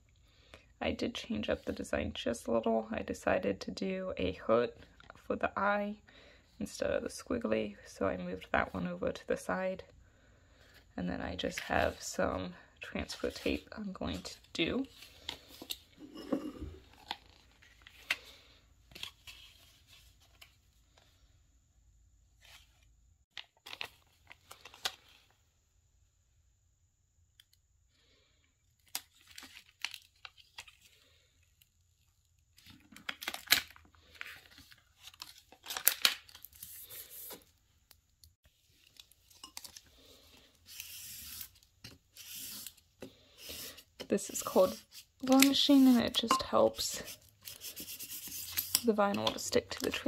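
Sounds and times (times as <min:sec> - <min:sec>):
plastic film crinkling: 0:32.6 - 0:37.4.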